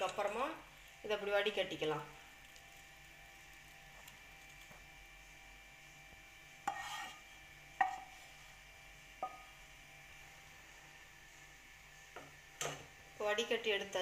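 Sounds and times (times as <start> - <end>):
pan scraping strainer: 6.7 - 8.4
metal pan knocking on strainer: 9.2 - 9.5.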